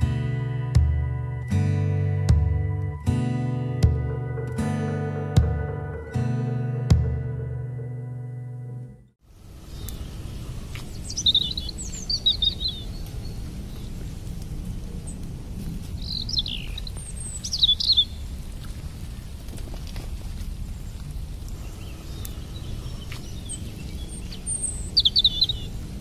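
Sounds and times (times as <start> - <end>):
birds chirping and whistling: 9.7 - 13.9, 16.0 - 18.3, 21.6 - 25.9.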